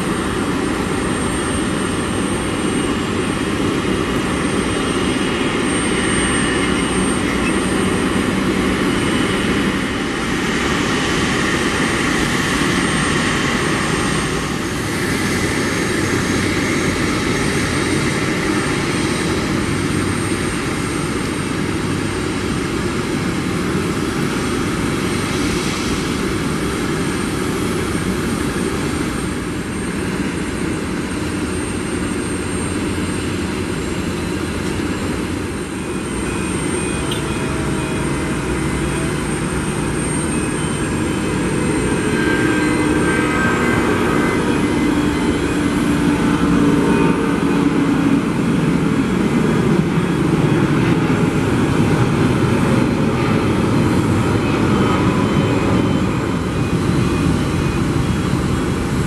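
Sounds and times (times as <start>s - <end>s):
jet engine roar: 0.0s - 59.0s.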